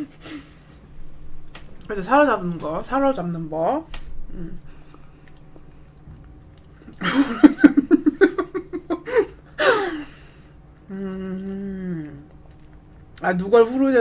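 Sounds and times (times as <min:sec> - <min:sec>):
woman giggling: 0:07.0 - 0:10.1
breathy laugh: 0:07.0 - 0:10.3.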